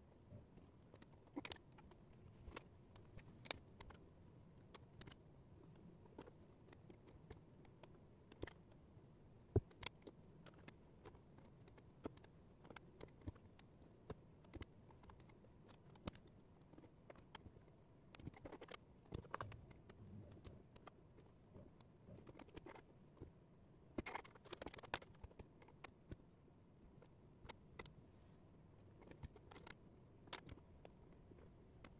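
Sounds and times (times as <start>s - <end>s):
wooden puzzle pieces clicking: 24.0s - 25.9s.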